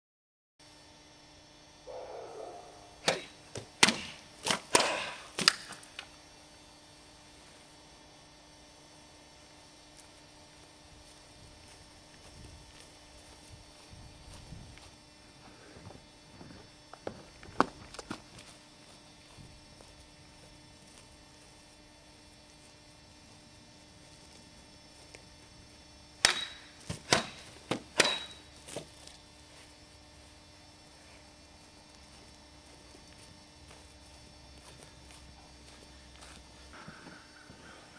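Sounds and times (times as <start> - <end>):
blade strikes on targets: 26.2 - 28.4
high blade ring: 26.3 - 26.8, 28.0 - 28.6.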